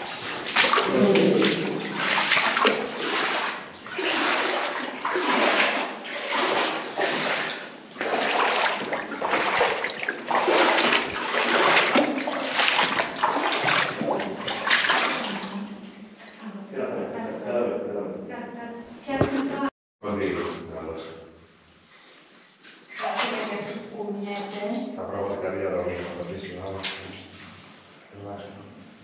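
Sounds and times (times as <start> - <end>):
feet wading through water: 0.0 - 16.3.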